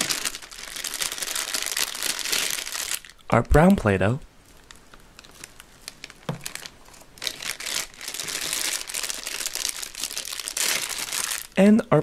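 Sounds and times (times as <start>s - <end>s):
plastic packaging crinkling: 0.0s - 3.3s, 4.4s - 11.6s.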